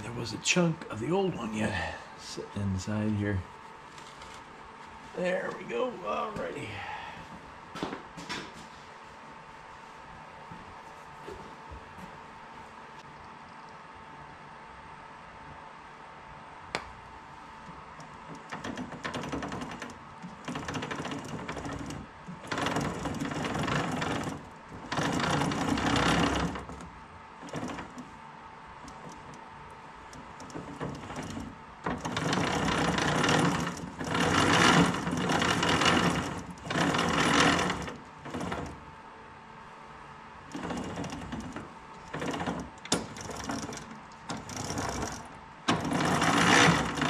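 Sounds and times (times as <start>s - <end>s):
sharp click: 16.7s - 17.0s
small motorized tool running: 18.6s - 28.0s, 30.4s - 38.8s, 40.5s - 47.0s.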